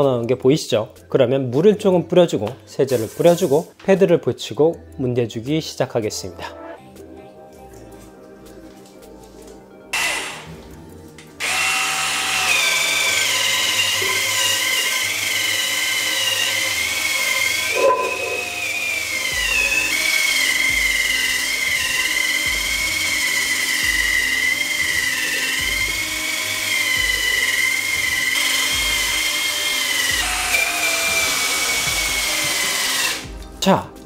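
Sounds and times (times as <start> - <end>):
power scrubber motor whine: 11.4 - 33.2.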